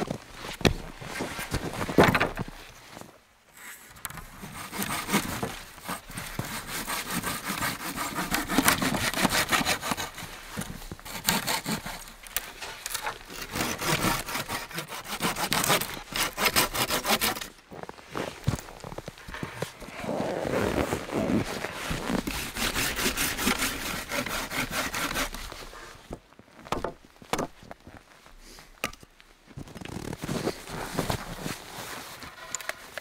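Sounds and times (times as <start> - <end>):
hand saw cutting wood: 4.4 - 17.5, 22.0 - 25.9.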